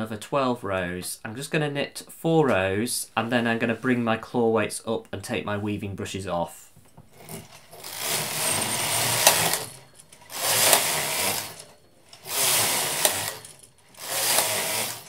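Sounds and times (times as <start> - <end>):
knitting machine carriage rasping: 7.1 - 15.0
knitting machine carriage click: 7.2 - 15.0.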